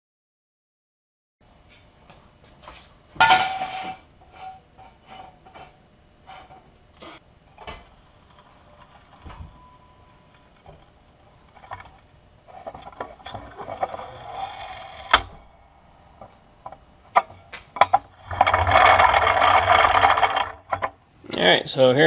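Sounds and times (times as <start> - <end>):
jack rolling on concrete: 8.1 - 15.5, 16.1 - 21.0
jack clunking: 16.2 - 21.0.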